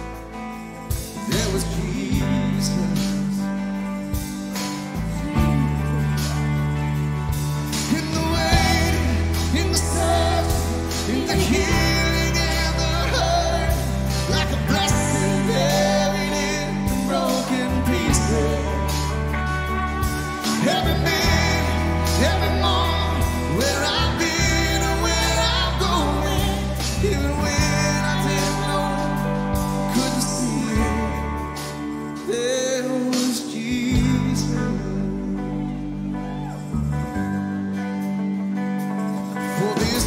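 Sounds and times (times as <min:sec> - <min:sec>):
person singing: 0:00.0 - 0:38.0, 0:39.2 - 0:40.0
worship band playing slow song: 0:00.0 - 0:40.0
steady drum beat: 0:04.1 - 0:31.9.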